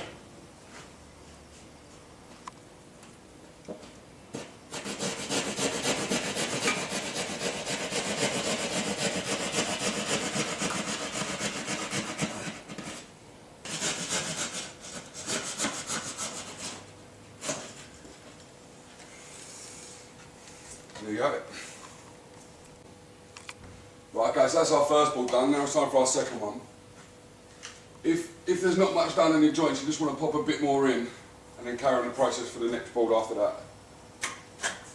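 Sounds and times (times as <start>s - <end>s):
hand saw cutting plasterboard: 4.4s - 16.8s.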